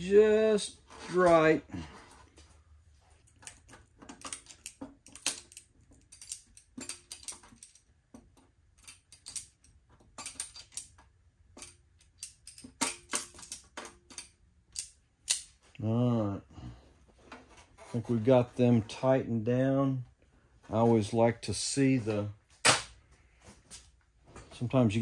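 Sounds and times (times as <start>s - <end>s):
wrench clicking on metal: 11.6s - 15.5s.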